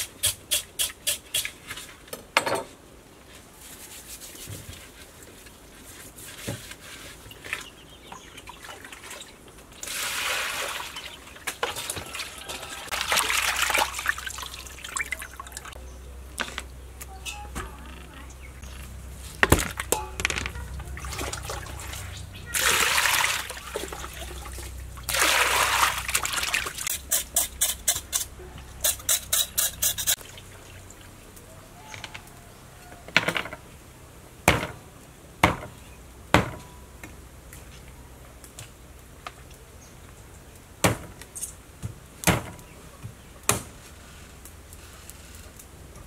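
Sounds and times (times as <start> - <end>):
washing strokes in metal basin: 3.6 - 15.8, 19.1 - 30.9
water pouring and splashing: 6.6 - 15.8, 19.6 - 27.6, 29.6 - 31.2.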